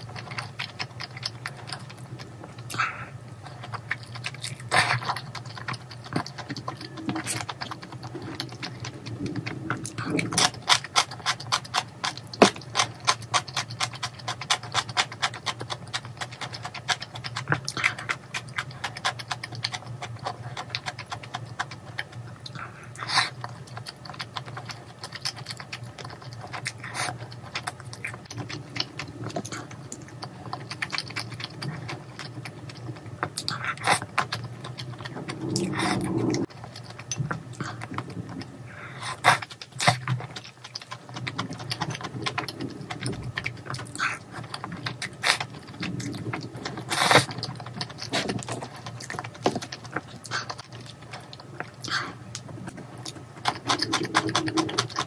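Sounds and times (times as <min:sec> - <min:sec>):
chewing: 0:00.0 - 0:55.0
slurping noodles: 0:33.4 - 0:36.5, 0:41.0 - 0:49.0.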